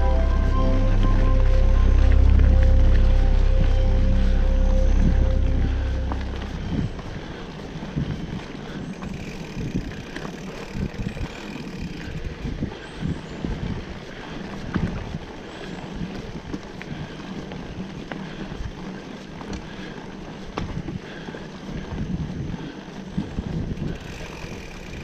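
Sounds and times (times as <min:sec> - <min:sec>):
low rumble: 0:00.0 - 0:11.3
wind buffeting microphone: 0:01.8 - 0:25.0.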